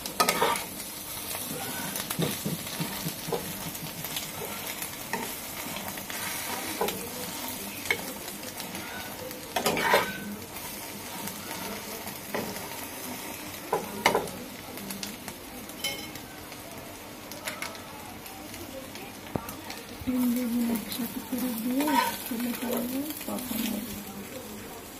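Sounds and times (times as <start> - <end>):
egg sizzling in oil: 0.0 - 24.9
metal spatula scraping pan: 0.2 - 0.8, 8.7 - 10.4, 21.7 - 22.8.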